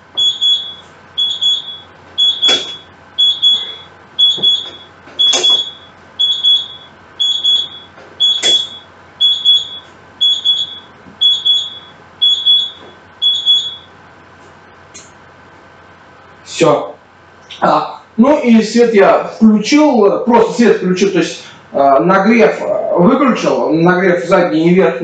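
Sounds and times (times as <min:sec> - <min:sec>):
oven timer double beep: 0:00.1 - 0:13.9.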